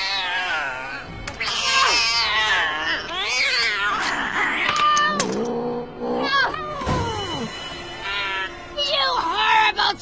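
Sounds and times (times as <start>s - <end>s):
screeching yowling cries: 0.0s - 5.3s
dramatic film score: 0.0s - 10.0s.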